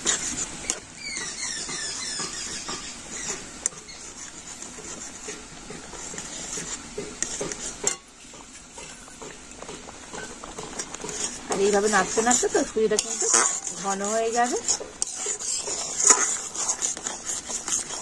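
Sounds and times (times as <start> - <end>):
metal spatula scraping a pan: 0.0 - 18.0
high squeaky falling chirps: 0.9 - 4.0.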